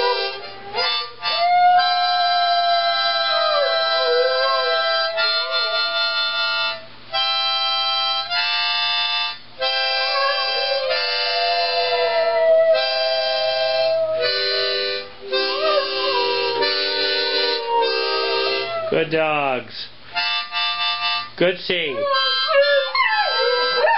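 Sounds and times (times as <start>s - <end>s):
dog howling: 0.0s - 6.5s, 10.0s - 19.0s, 21.9s - 23.9s
harmonica playing chords: 0.0s - 19.0s, 20.1s - 23.9s.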